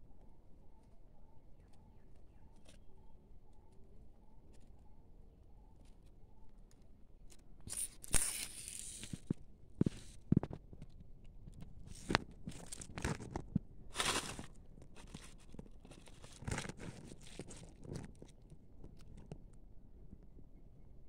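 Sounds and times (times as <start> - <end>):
leaves rustling: 7.7 - 9.2, 13.9 - 18.0
crunching in dry leaves: 7.7 - 9.3, 11.9 - 18.4.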